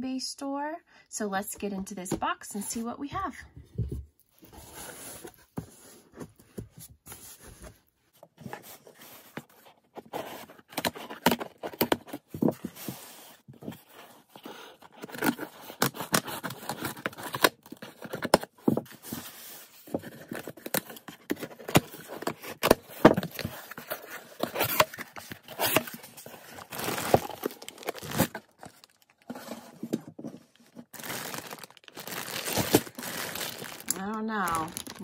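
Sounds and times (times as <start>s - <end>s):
cardboard box tearing: 20.0s - 29.8s, 30.9s - 35.0s.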